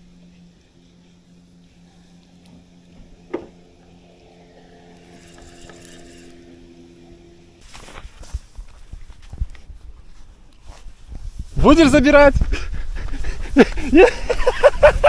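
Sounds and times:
fishing reel whirring: 0.0s - 7.7s.

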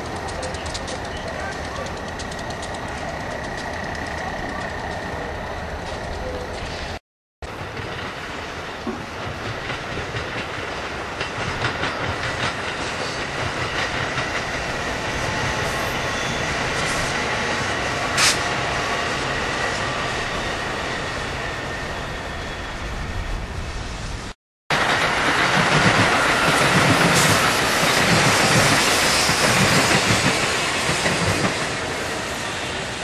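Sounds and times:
wheels clicking over rail joints: 0.0s - 7.0s
electric train passing: 0.0s - 33.0s.

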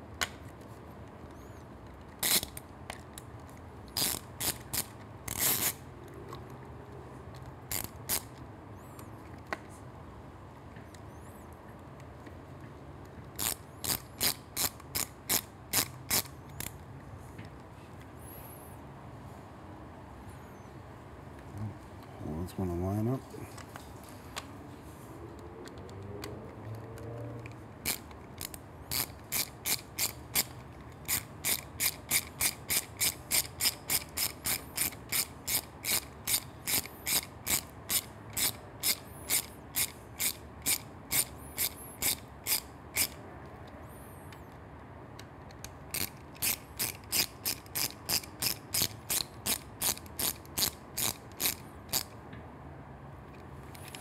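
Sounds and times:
ratcheting screwdriver clicking: 7.4s - 8.4s, 13.3s - 16.8s, 25.6s - 43.2s, 45.4s - 52.2s.

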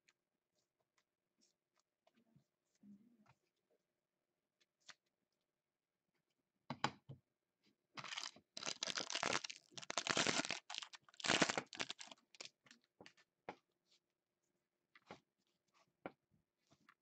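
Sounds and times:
foil pack tearing and crinkling: 8.0s - 12.5s.

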